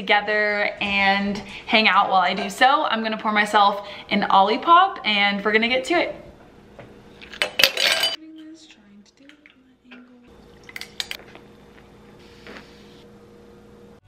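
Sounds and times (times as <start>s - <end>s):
ice clinking into glass: 7.3s - 8.2s.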